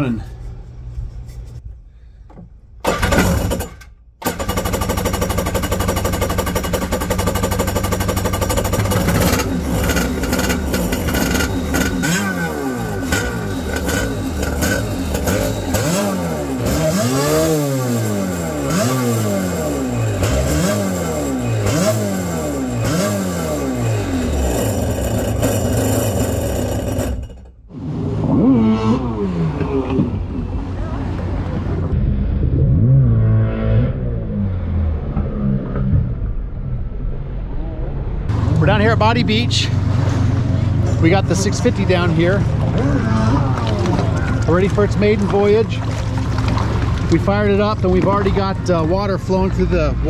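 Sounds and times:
jet ski engine revving: 4.2 - 31.9.

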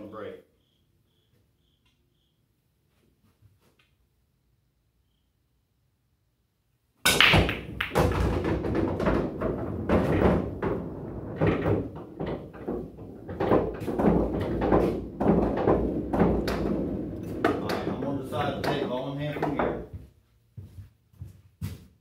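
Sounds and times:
pool balls knocking and rolling: 7.0 - 20.0
cue ball cracking into rack: 7.1 - 19.9.

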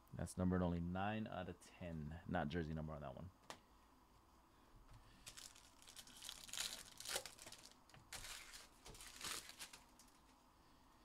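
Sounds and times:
plastic wrapper crinkling: 5.2 - 10.2.

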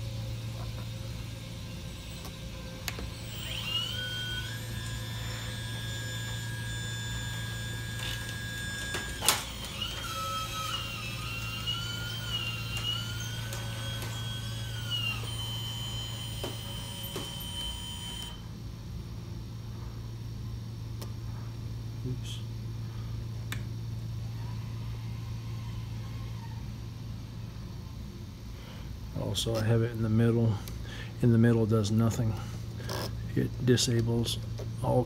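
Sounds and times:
electric motors whining: 0.0 - 18.5, 24.2 - 27.0
steady low hum: 0.0 - 35.0.

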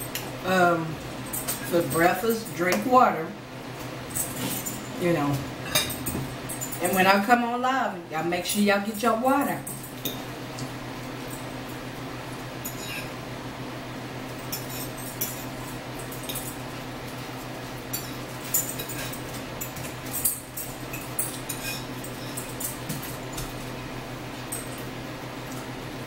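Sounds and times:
steady low hum: 0.0 - 26.0
fork scraping on a plate: 12.7 - 13.2.

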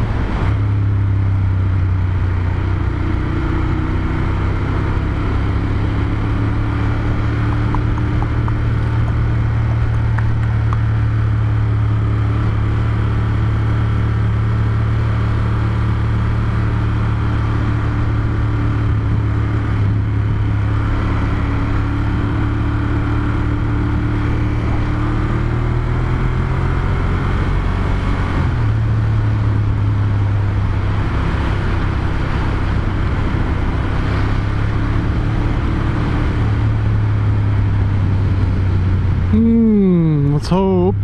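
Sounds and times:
motorcycle engine running: 0.0 - 27.9.

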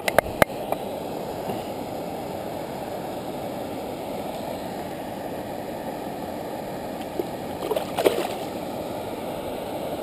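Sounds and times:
fish splashing in water: 7.6 - 8.5.

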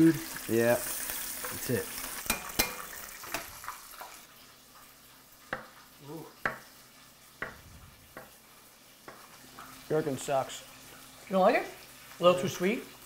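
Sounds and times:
chicken frying in oil: 0.0 - 13.0
knife hitting cutting board: 7.4 - 7.6.

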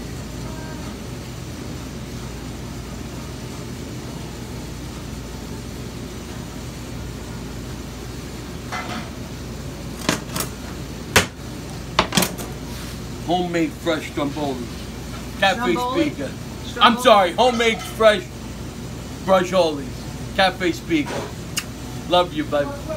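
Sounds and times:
kitchen equipment humming: 0.0 - 22.9.

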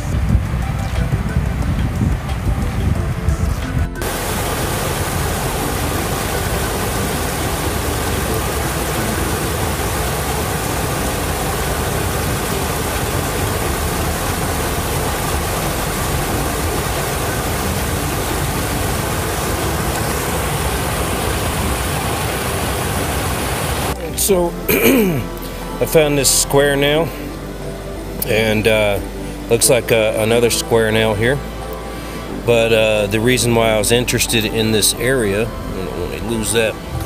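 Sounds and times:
water rushing over rocks: 0.0 - 37.0.

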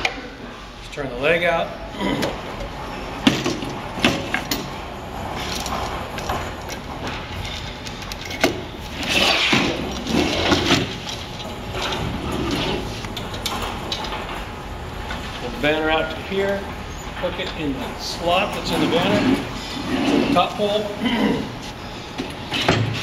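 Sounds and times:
pole and banner sliding and rustling: 4.0 - 15.7, 18.2 - 20.8.

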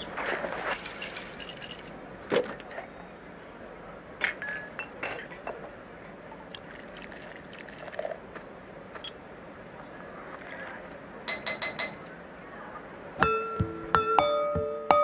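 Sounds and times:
water pouring into glass bottles: 0.0 - 2.0, 6.5 - 8.2
glass clinking: 4.2 - 5.6.

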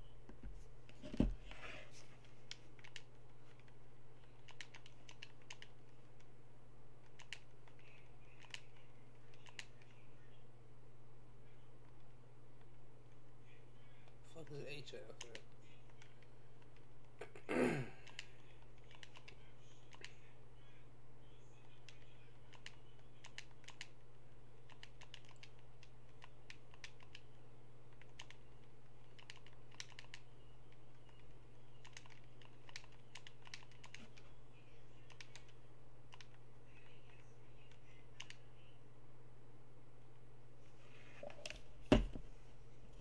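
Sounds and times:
low electrical hum: 0.0 - 43.0
keyboard typing: 2.5 - 6.3, 7.0 - 7.8, 8.4 - 9.9, 18.0 - 20.1, 21.8 - 24.0, 24.6 - 27.3, 27.9 - 34.2, 35.1 - 36.4.

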